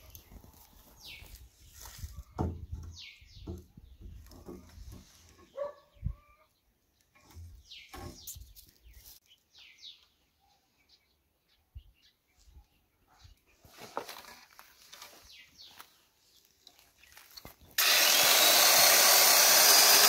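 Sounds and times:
wooden boards knocking and scraping: 2.4s - 5.0s.

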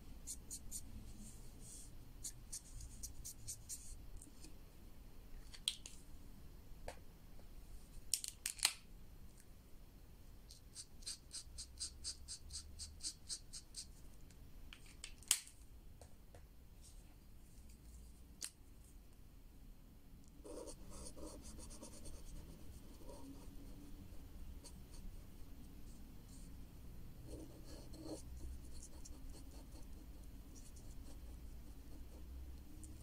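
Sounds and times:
marker scribbling on paper: 0.2s - 4.0s, 10.5s - 14.0s, 27.3s - 32.3s.

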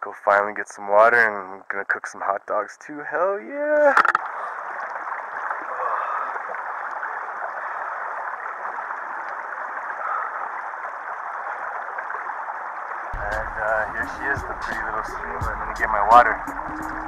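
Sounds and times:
stream running over rocks: 3.4s - 13.8s.

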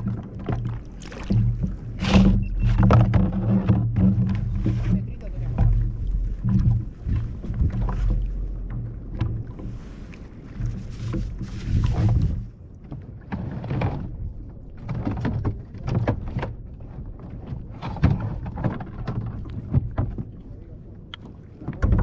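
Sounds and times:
steady low rumble: 0.0s - 12.8s.

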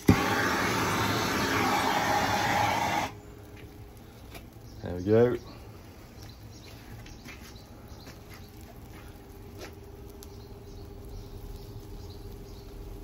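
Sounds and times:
crackles of wood burning: 0.0s - 13.0s
steady hum: 0.0s - 13.0s.

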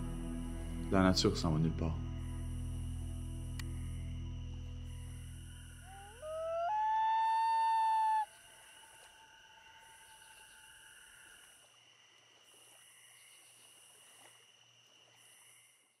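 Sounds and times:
loon wail: 5.9s - 8.3s.

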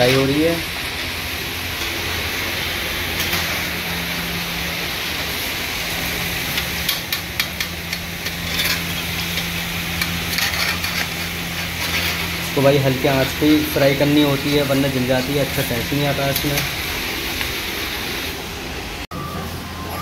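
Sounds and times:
vegetables sizzling in hot oil: 0.0s - 18.7s
skimmer scraping metal pan: 10.2s - 15.6s.

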